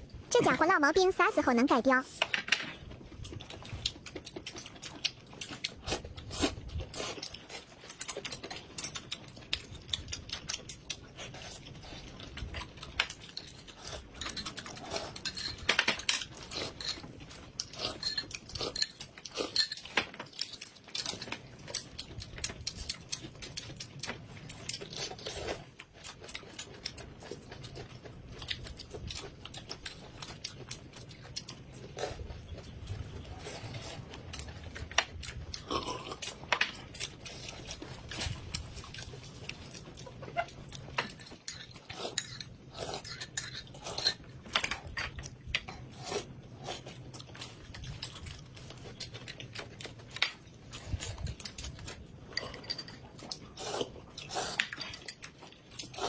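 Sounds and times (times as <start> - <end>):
people chewing and slurping noodles: 0.0 - 56.0
chopsticks and tableware clinking: 13.2 - 21.1, 51.0 - 53.4.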